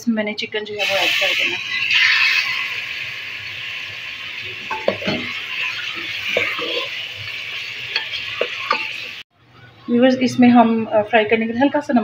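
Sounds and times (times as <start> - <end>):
chicken sizzling in hot oil: 0.7 - 9.3.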